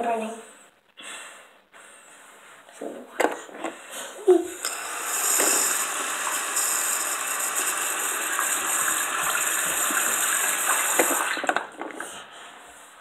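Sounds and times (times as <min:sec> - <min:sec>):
sink tap running: 0:04.6 - 0:11.9.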